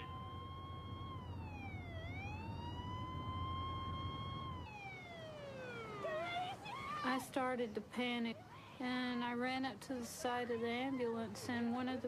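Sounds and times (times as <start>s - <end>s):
police siren wailing: 0.0s - 7.3s
low engine and road hum: 0.0s - 12.0s.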